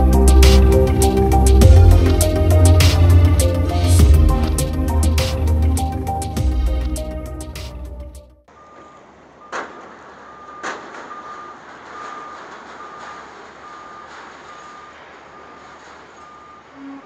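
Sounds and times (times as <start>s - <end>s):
steady yard hum: 0.0s - 17.0s
backup alarm beeping: 8.5s - 17.0s.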